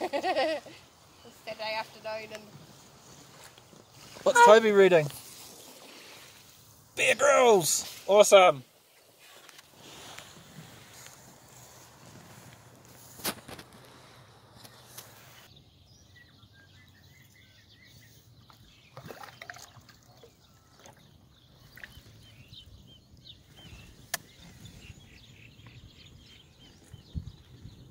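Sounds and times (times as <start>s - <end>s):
paddle splash: 4.0s - 6.6s, 18.9s - 22.2s
faint bird chirps: 14.6s - 27.9s.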